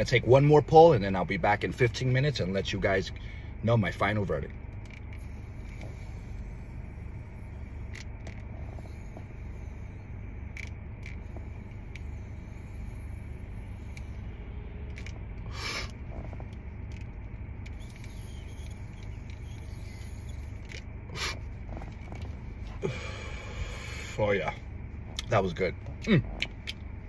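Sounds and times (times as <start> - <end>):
low rumble inside car cabin: 0.0 - 27.0
man drawing on a vape: 3.7 - 24.5.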